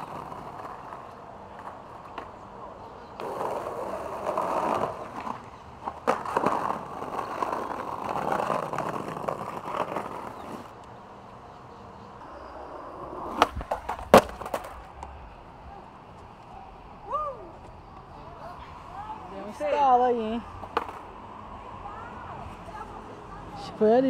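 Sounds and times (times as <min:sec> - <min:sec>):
skateboard clacks: 0:00.0 - 0:10.7, 0:13.0 - 0:15.2, 0:20.6 - 0:21.1
skateboard wheels rolling on pavement: 0:00.0 - 0:24.0
skateboard hitting the ground: 0:03.2 - 0:10.6, 0:13.2 - 0:15.2, 0:20.6 - 0:21.1.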